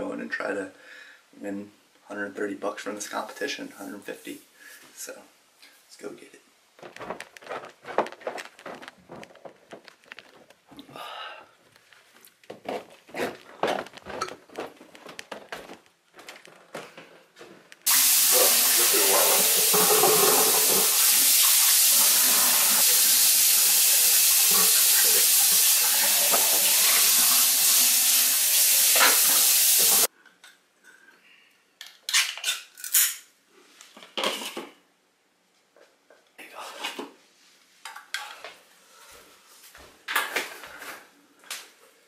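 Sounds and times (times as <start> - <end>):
faucet running into sink: 17.9 - 30.1.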